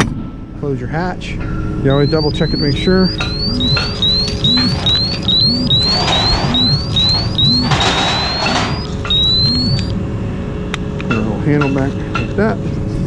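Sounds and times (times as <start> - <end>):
electronic alarm chirping: 1.9 - 10.0.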